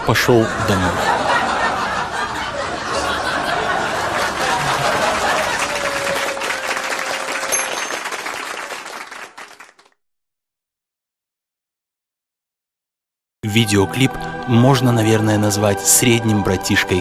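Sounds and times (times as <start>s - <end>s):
group clapping: 3.4s - 10.0s.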